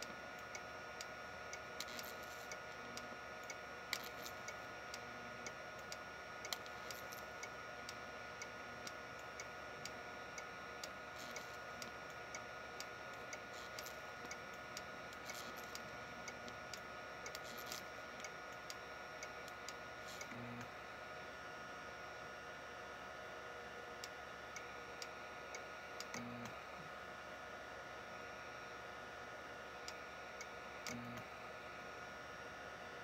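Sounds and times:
faint high whine: 0.0s - 33.0s
sharp electric ticks: 0.3s - 20.4s.

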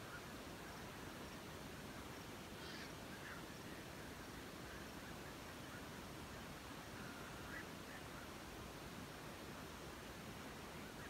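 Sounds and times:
steady hiss: 0.0s - 11.0s
waterbird calls: 2.6s - 3.5s.

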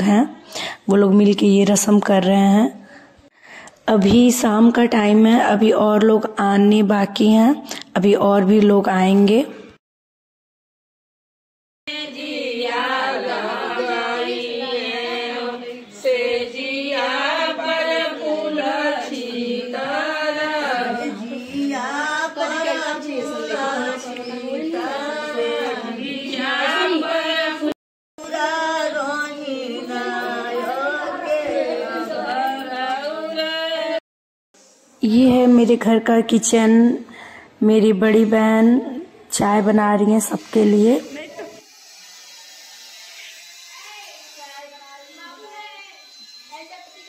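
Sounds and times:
women singing in unison: 11.9s - 34.0s.

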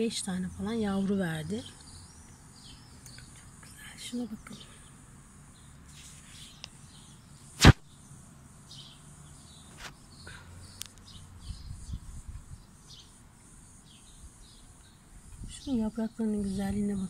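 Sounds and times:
faint chirps: 0.0s - 17.0s
sharp loud knock: 7.6s - 7.8s.

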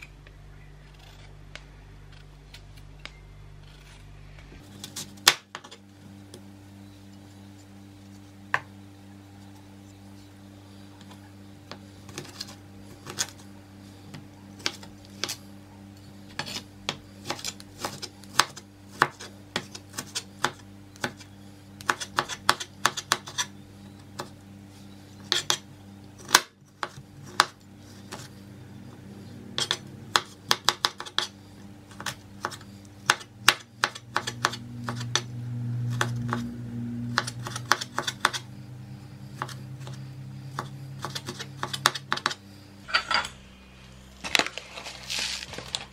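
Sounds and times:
low hum: 0.0s - 16.9s, 31.4s - 45.9s
knife chopping on cutting board: 37.2s - 38.4s, 39.4s - 42.4s.

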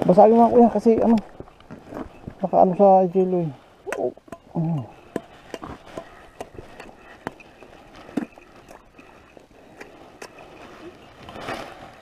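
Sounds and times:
small ticks and knocks: 3.9s - 11.5s.

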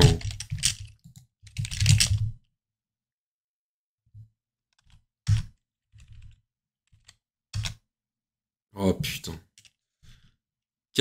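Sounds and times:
keyboard typing: 0.0s - 2.3s, 4.7s - 7.8s.

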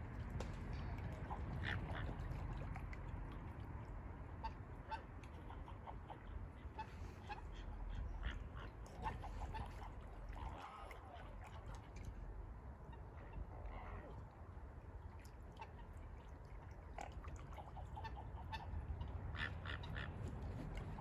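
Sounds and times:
low steady rumble: 0.0s - 21.0s
ducks quacking: 1.1s - 2.6s, 4.4s - 11.8s, 17.6s - 21.0s.

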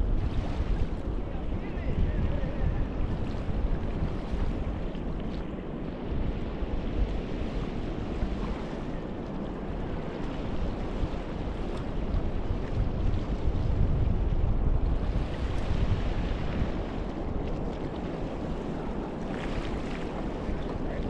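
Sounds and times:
small waves washing on shore: 0.0s - 21.0s
wind buffeting microphone: 0.0s - 21.0s.

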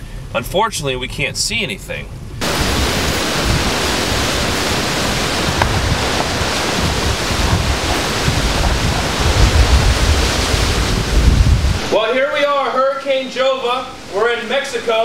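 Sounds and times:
wind buffeting on microphone: 2.4s - 11.9s
surf pounding on beach: 2.4s - 12.1s
hurricane winds blowing: 2.4s - 15.0s.

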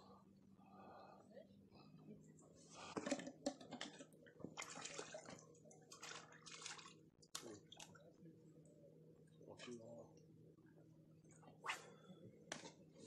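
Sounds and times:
water splashing and dripping: 4.6s - 8.0s.

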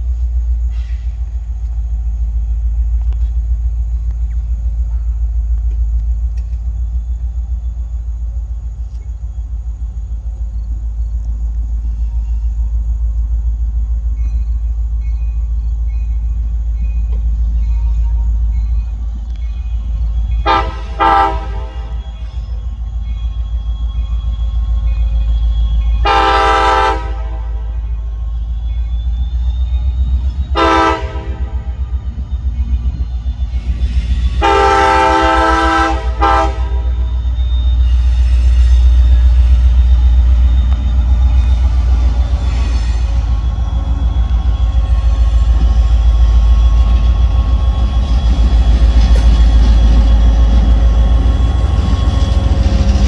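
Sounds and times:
low engine rumble: 0.0s - 53.0s
locomotive air horn blasts: 20.4s - 22.2s, 26.0s - 28.0s, 30.5s - 32.0s, 34.3s - 37.2s.

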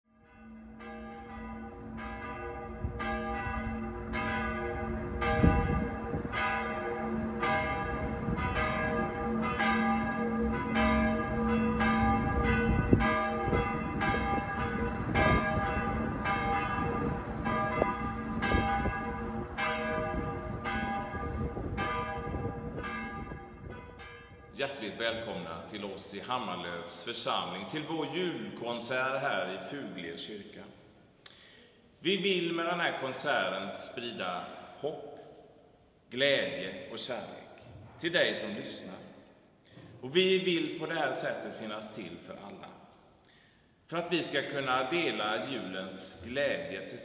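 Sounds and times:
church bells ringing: 0.1s - 30.0s, 38.2s - 39.0s.

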